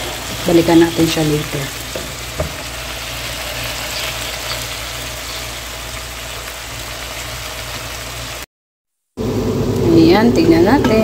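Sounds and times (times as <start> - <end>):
vegetables sizzling in a pan: 0.0 - 8.5.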